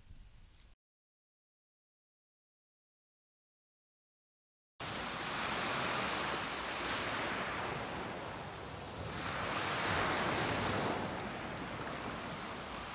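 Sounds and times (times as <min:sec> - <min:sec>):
waves washing onto pebble beach: 0:04.8 - 0:12.9.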